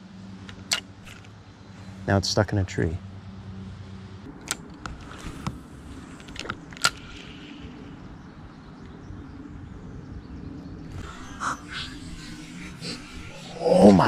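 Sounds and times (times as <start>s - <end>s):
fishing rod and reel clicks: 6.2s - 7.5s.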